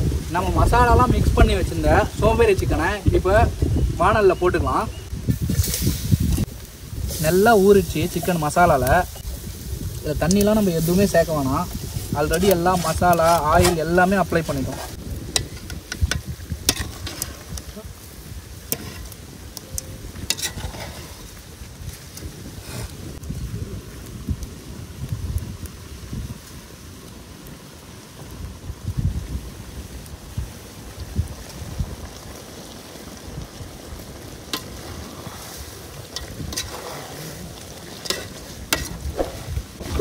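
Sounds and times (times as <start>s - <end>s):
light sizzle: 0.0s - 40.0s
spatula scraping a metal pan: 12.3s - 14.8s, 15.4s - 17.6s, 18.7s - 19.2s, 20.3s - 21.3s, 36.2s - 37.3s, 37.9s - 40.0s
low thumps: 38.8s - 40.0s.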